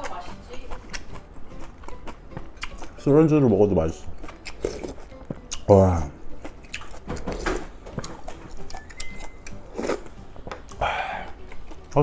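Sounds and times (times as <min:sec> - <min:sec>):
man chewing with wet mouth clicks: 0:00.0 - 0:03.0, 0:04.1 - 0:12.0.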